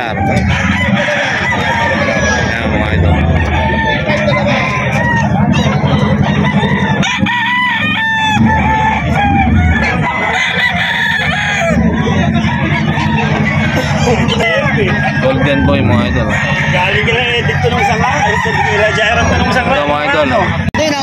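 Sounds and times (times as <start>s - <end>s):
roosters crowing: 0.0s - 20.7s
low rumble: 0.3s - 10.4s.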